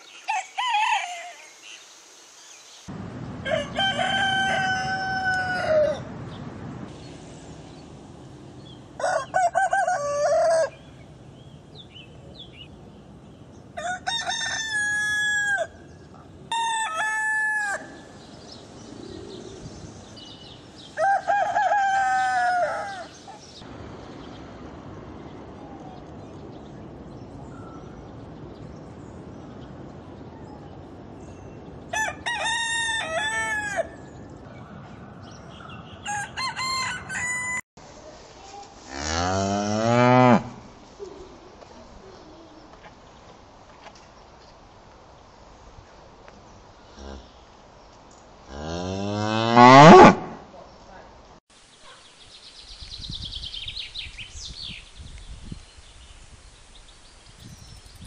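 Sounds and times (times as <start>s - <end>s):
roosters crowing: 0.2s - 1.5s, 3.4s - 6.3s, 8.7s - 11.1s, 13.8s - 18.3s, 20.8s - 23.6s, 31.9s - 34.2s, 35.8s - 37.6s.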